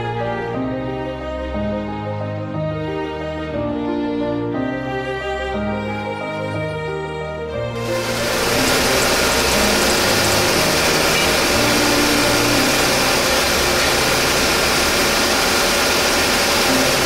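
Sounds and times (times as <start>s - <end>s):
metal cutting saw running: 7.8s - 17.0s.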